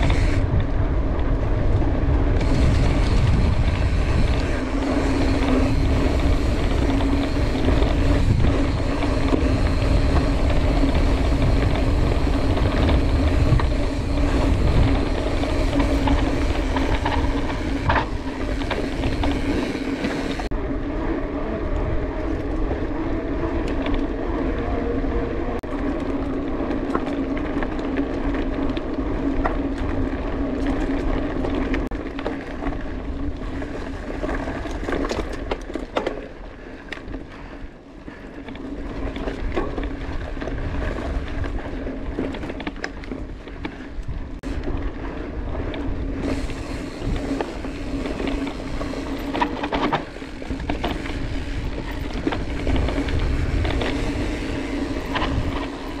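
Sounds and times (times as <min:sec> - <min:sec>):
wind on microphone: 0:00.0 - 0:25.7, 0:38.8 - 0:56.0
bike clicks and rattles: 0:00.0 - 0:56.0
tyres rolling hum: 0:00.0 - 0:56.0.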